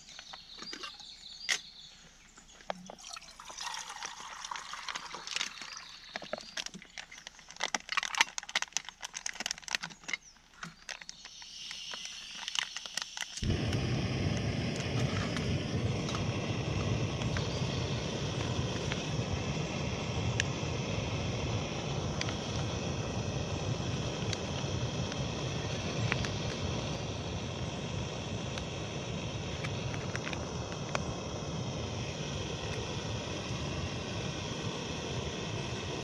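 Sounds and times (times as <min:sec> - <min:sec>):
gas stove burner hissing: 0:11.2 - 0:36.0.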